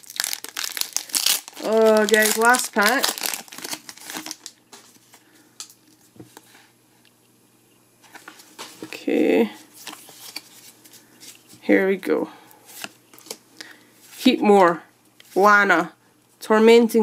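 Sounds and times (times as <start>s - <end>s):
foil wrapper crinkling: 0.0s - 5.0s
cards clicking and rustling: 12.8s - 13.4s.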